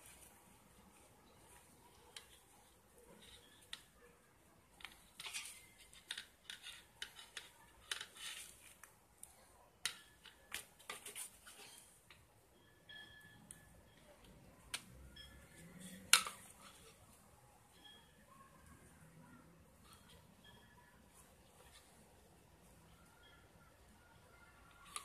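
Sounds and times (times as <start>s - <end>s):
small clicks and rustles: 4.7s - 12.3s.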